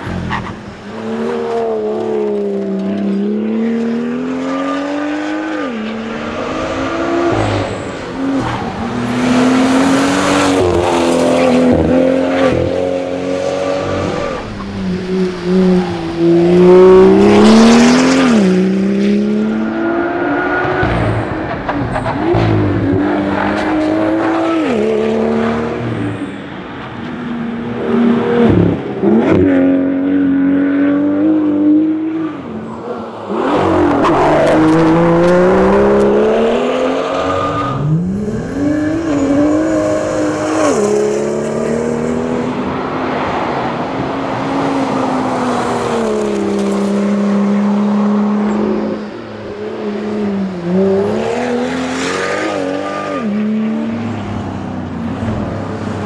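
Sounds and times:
car engine accelerating: 0.0 - 26.2, 33.3 - 49.3.

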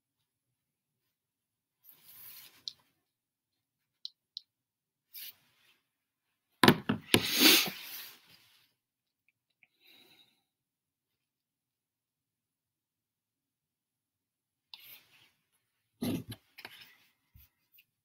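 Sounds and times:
knocks and rustling on phone: 6.6 - 7.2.

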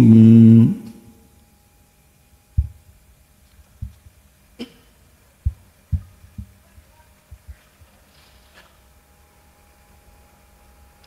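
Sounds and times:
faint steady hum: 0.0 - 11.0
microphone handling thumps: 2.5 - 4.3, 5.4 - 7.7.

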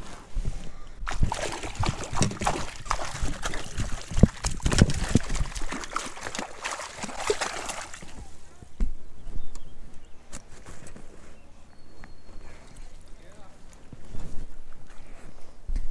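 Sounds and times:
fish splashing in net: 1.1 - 8.3.

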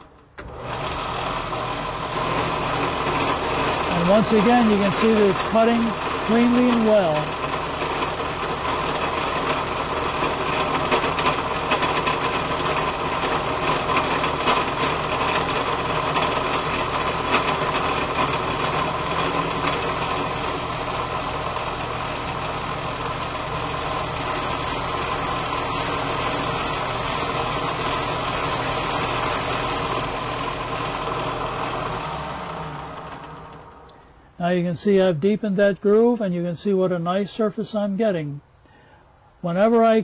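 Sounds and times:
drill press humming: 0.0 - 34.4
cutter rasping metal: 0.5 - 32.1.

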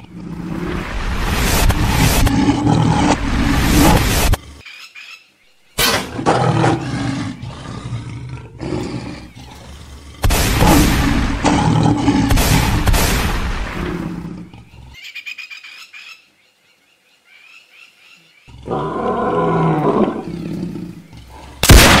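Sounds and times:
lion growling and roaring: 0.0 - 4.6, 5.8 - 15.0, 18.5 - 22.0.

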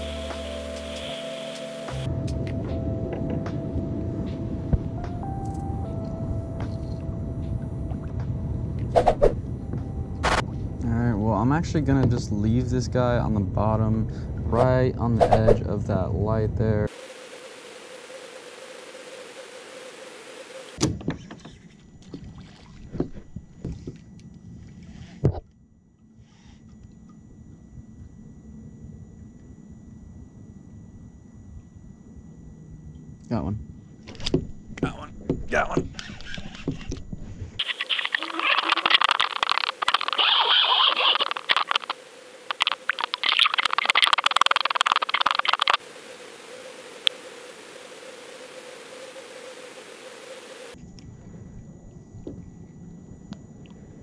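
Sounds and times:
microphone hiss and hum: 0.0 - 21.0, 33.4 - 54.0
faint steady hiss: 37.6 - 50.8
thin steady tone: 37.6 - 54.0.

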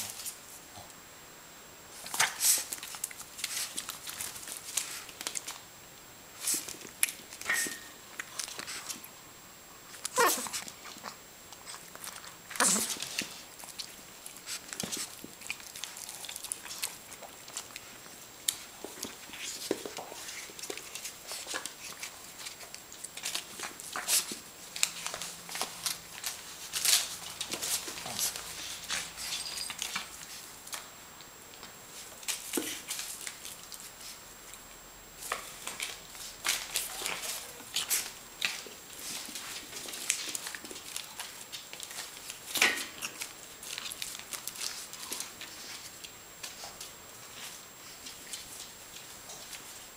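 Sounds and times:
dog chewing paper: 2.0 - 5.6, 9.9 - 30.9, 35.2 - 49.9
dog whimpering: 10.1 - 10.6.

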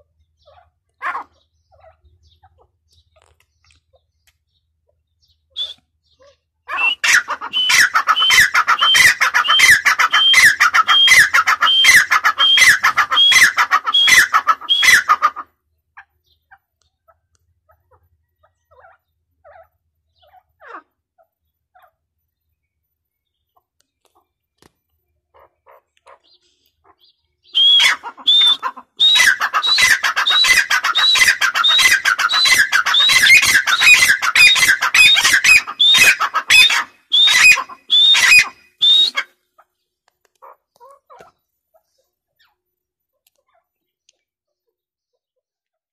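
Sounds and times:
francolin calling: 5.1 - 15.4, 25.7 - 39.3.

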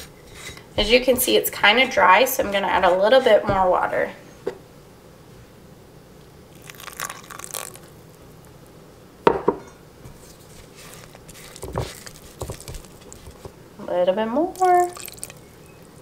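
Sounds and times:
spatula scraping thick dough: 1.6 - 3.4, 10.1 - 13.6.

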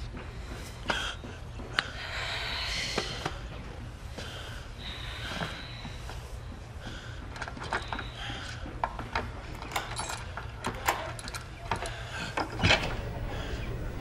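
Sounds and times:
low steady hum: 0.0 - 14.0
light clicks and clinks: 7.4 - 12.6.

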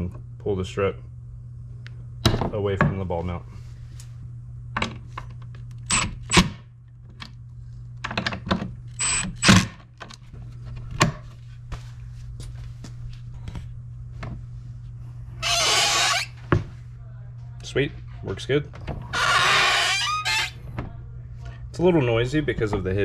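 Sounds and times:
clicks and knocks of handling: 8.0 - 8.8.

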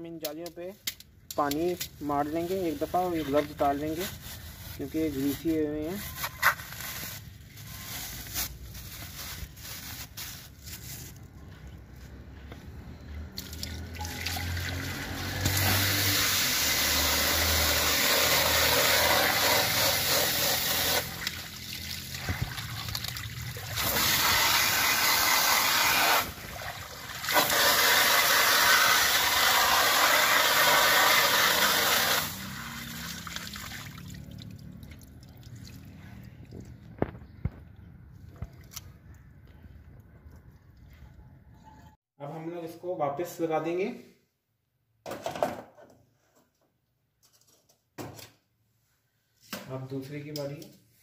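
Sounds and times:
hose water spraying on metal mesh: 15.2 - 22.5, 23.8 - 26.4, 27.3 - 33.2.

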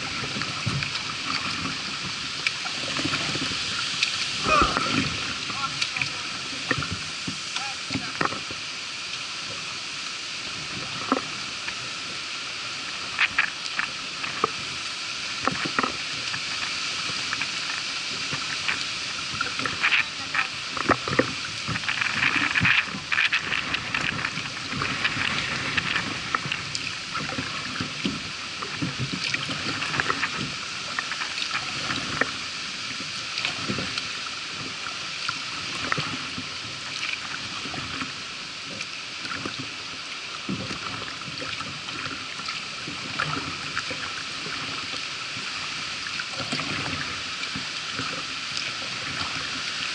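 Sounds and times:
paddle splashes and drips: 0.0 - 49.9
water rushing along kayak hull: 0.0 - 49.9.

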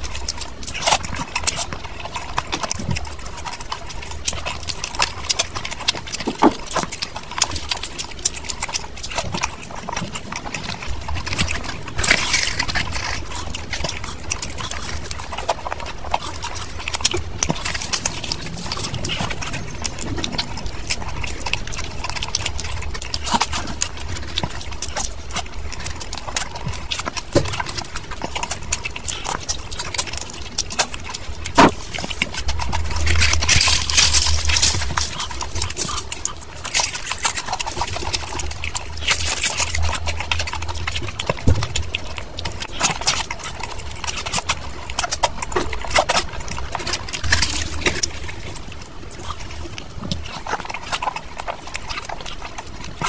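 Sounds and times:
chewing and mouth smacking: 0.0 - 53.0.

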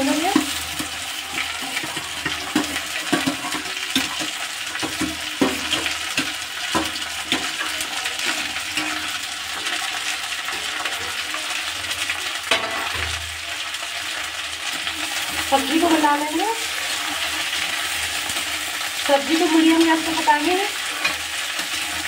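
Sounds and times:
okra sizzling in hot oil: 0.0 - 22.0
metal spatula clicks and scrapes: 0.2 - 13.1, 20.8 - 22.0.

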